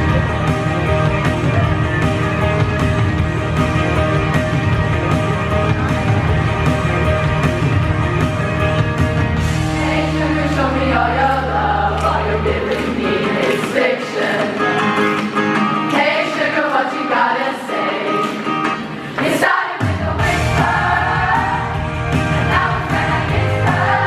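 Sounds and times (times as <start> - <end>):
rock band playing: 0.0 - 11.8, 14.2 - 15.9, 19.8 - 24.0
girls' choir singing: 9.5 - 14.8, 15.9 - 24.0.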